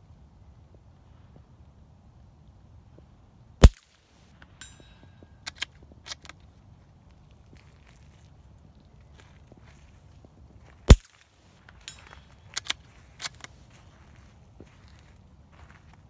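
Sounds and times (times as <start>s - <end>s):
suppressed rifle shot crack: 3.6s - 3.8s, 10.9s - 11.2s
steel target ringing: 4.6s - 5.4s
rifle bolt clicks: 5.4s - 6.5s, 11.8s - 13.5s.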